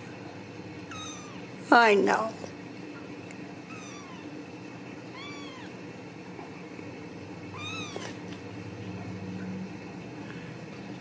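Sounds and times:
kitten meowing: 0.9 - 1.5, 3.7 - 4.3, 5.1 - 5.8, 7.5 - 8.2.

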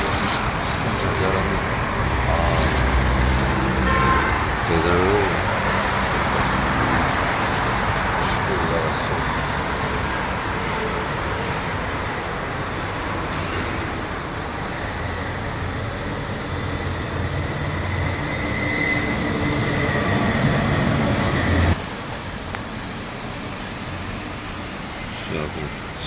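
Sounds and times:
vehicle traffic rumble: 0.0 - 26.0
faint high whine: 14.7 - 21.8.

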